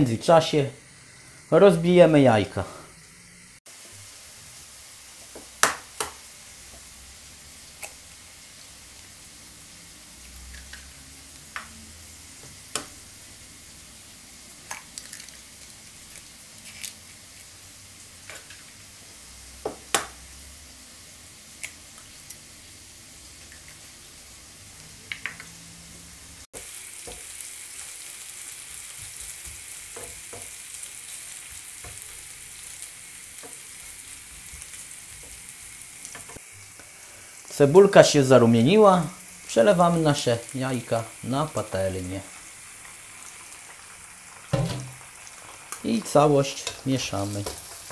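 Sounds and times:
food sizzling in frying pan: 0.0 - 47.9
eggshells cracking: 14.7 - 17.0.

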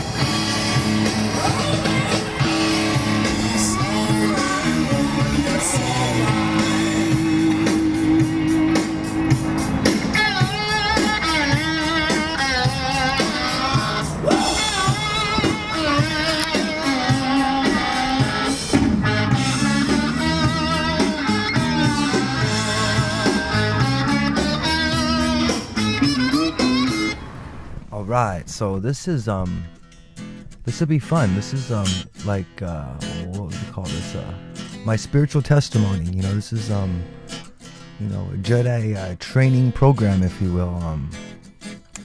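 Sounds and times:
rock song with guitar and beat: 0.0 - 27.2
person singing: 1.3 - 8.8, 19.3 - 25.5.

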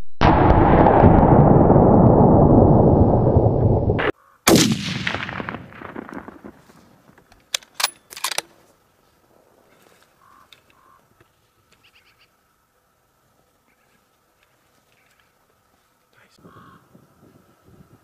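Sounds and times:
loud rumble: 0.2 - 4.1
rifle shot echoing: 4.0 - 6.8.

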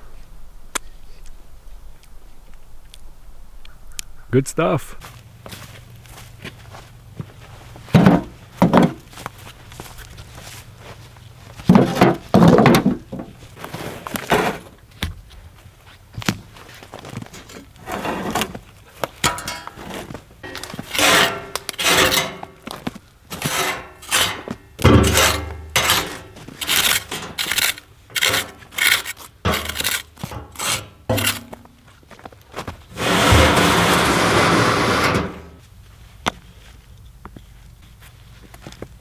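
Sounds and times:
bricks clunking together: 11.6 - 13.4, 19.2 - 31.7
bricks scraping: 11.7 - 14.8, 19.3 - 31.7, 32.9 - 35.6
heavy thud: 24.8 - 26.1, 32.9 - 35.6.

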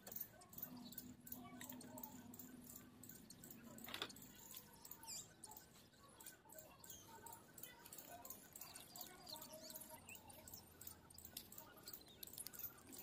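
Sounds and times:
small high chirps: 0.1 - 13.0.

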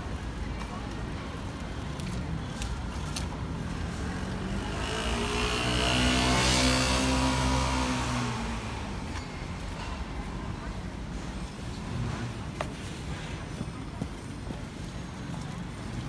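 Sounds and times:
vehicle passing by: 3.9 - 9.1.

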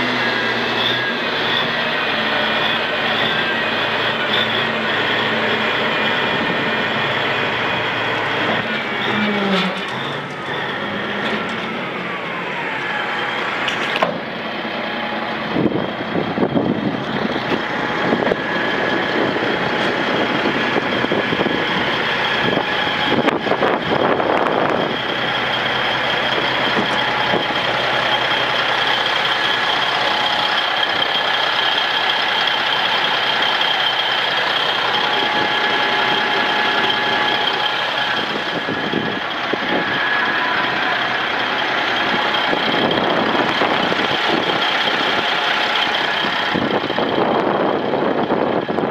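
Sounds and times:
diesel engine idling: 0.0 - 48.9
steady high whine: 10.3 - 48.9.

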